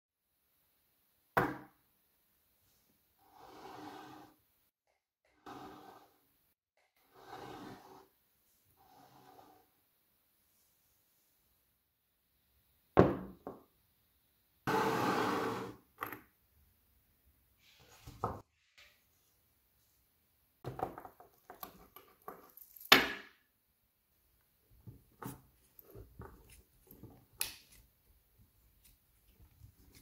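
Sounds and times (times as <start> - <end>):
knock on wooden tabletop: 13.0 - 13.6.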